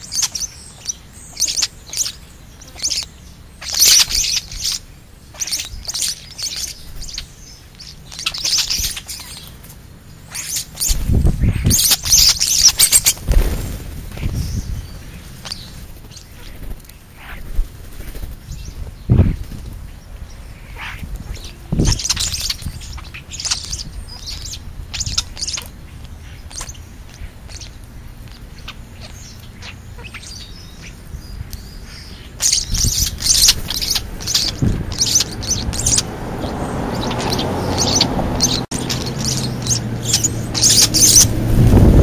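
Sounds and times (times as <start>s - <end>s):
starlings chirping: 0.0s - 42.0s
low motor hum: 32.8s - 42.0s.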